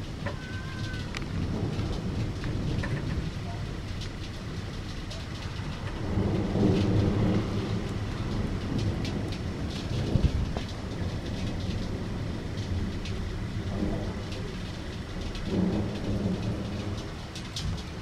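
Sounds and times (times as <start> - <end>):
steady rain: 0.0 - 18.0
thunder rumbling: 0.0 - 18.0.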